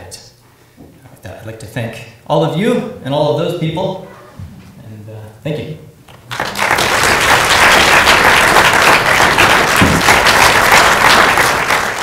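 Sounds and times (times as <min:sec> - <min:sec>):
audience applauding: 0:06.1 - 0:12.0.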